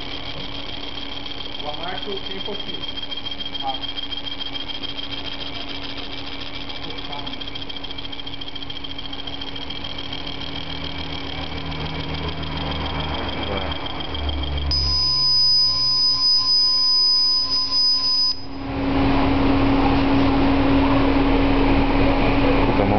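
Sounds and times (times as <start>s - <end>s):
laser engraver humming: 0.0s - 22.9s
steady high tone: 0.0s - 22.9s.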